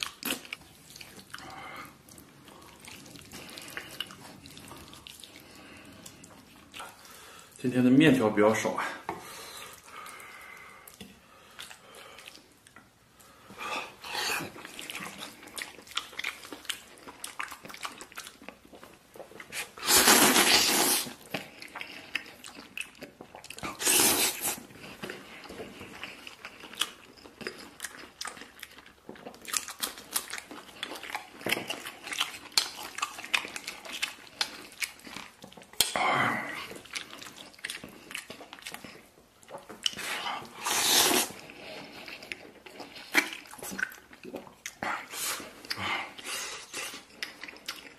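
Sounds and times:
wet chewing: 0.0s - 7.2s, 9.6s - 47.9s
slurping noodles: 19.5s - 21.2s, 23.6s - 24.7s, 40.0s - 43.9s.

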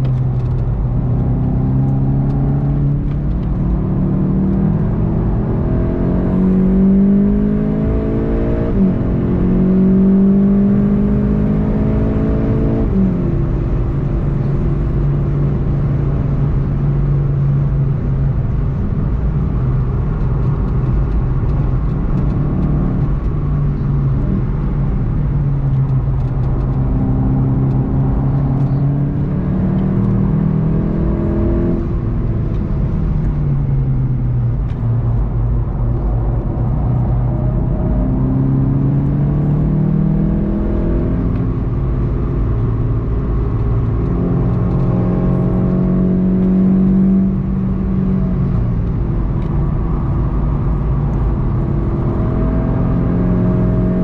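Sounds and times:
car engine accelerating through gears: 0.0s - 54.0s.

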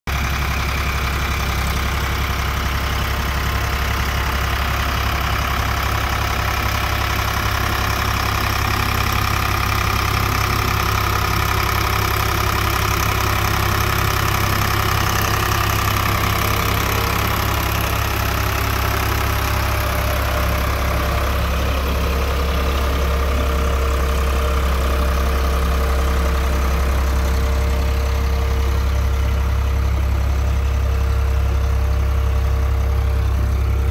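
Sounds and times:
tractor diesel engine droning: 0.1s - 33.9s.

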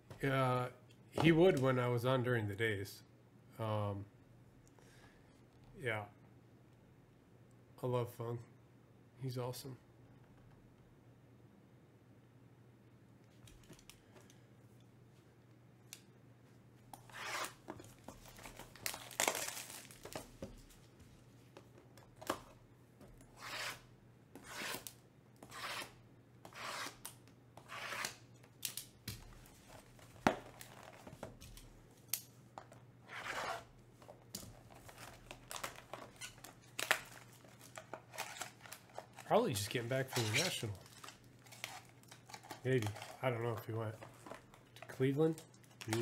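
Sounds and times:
plastic wrap and cardboard tearing: 18.2s - 20.3s, 34.6s - 43.2s.

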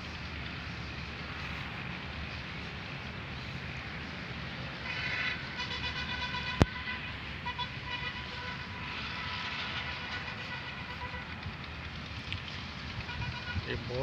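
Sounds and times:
outdoor noise: 0.0s - 14.0s
distant horn-like tone: 4.8s - 11.5s, 13.0s - 13.8s.

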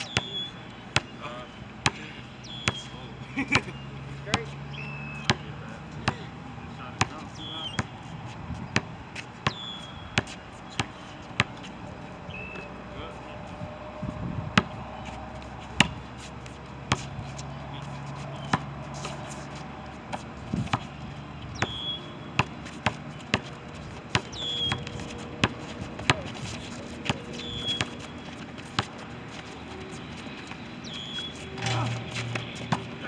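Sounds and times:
basketball bouncing on concrete: 5.2s - 6.3s, 6.9s - 8.0s, 8.6s - 11.7s, 14.5s - 14.8s, 15.8s - 17.5s, 20.1s - 29.1s, 29.8s - 33.0s.

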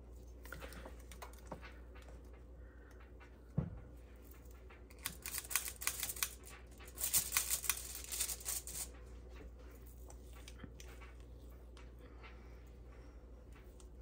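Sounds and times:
crinkly rustling: 4.0s - 12.3s.

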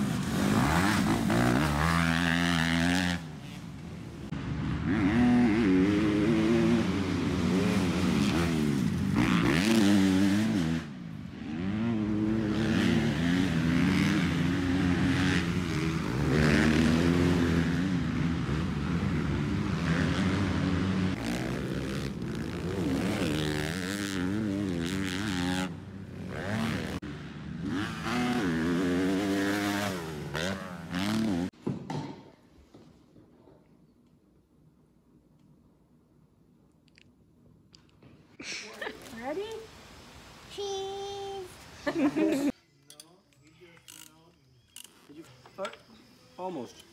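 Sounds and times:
dirt bike engines revving: 0.0s - 31.6s.

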